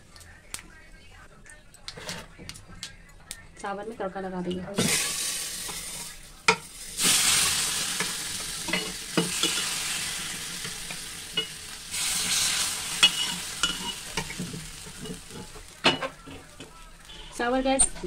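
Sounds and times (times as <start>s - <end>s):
hot oil and spices sizzling: 3.6s - 18.0s.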